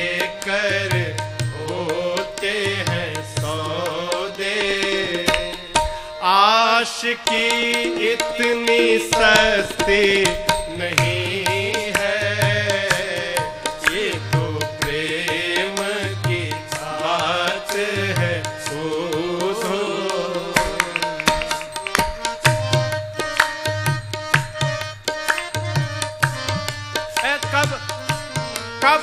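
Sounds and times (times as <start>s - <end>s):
hand drums: 4.8s - 6.2s, 7.6s - 29.0s.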